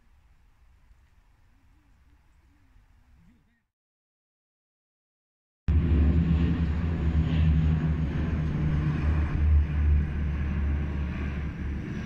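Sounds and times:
small plane engines droning: 0:05.7 - 0:12.0.

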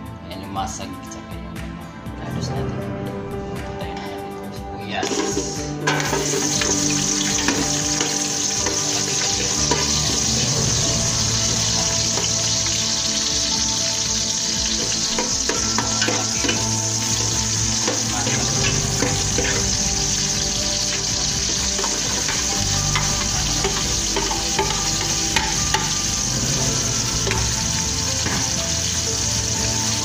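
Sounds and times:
onions sizzling in hot oil: 0:05.0 - 0:30.0
metal ladle stirring in pot: 0:14.8 - 0:19.8, 0:20.8 - 0:26.0.

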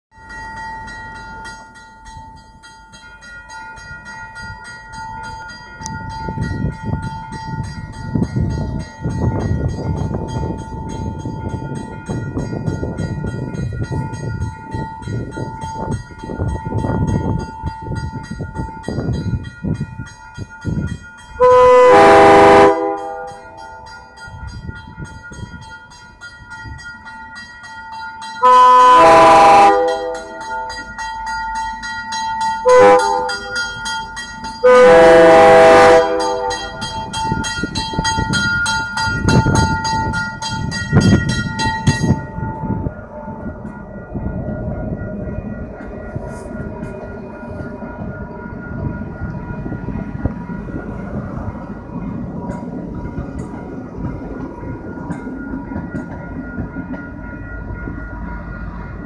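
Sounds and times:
railroad crossing bell ringing: 0:00.1 - 0:59.0
train horn blasts: 0:21.4 - 0:23.8, 0:28.4 - 0:30.9, 0:32.6 - 0:33.6, 0:34.6 - 0:36.9.

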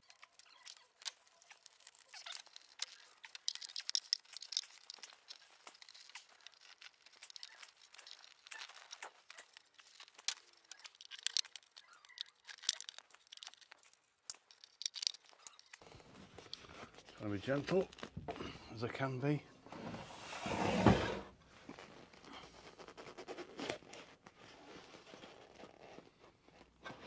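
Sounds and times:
small clicks: 0:00.0 - 0:15.8.

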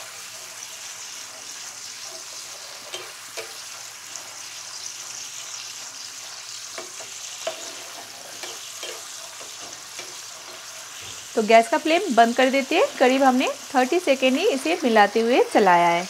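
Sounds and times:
sauce sizzling and bubbling: 0:00.0 - 0:16.0
spatula scraping a pan: 0:00.2 - 0:11.4.

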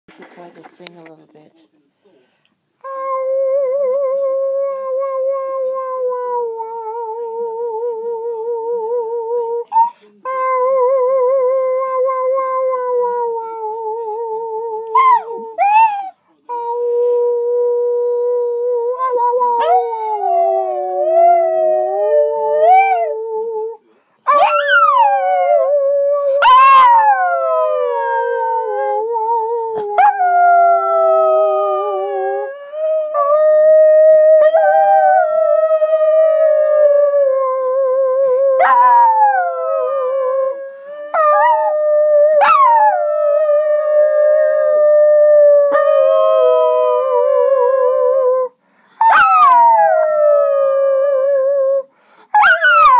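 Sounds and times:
dog howling: 0:24.3 - 0:51.8, 0:52.4 - 0:52.9.

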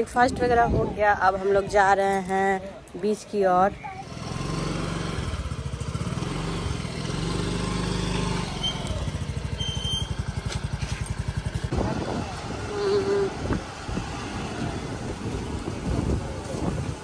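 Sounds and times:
scooter engine idling: 0:04.0 - 0:13.9.

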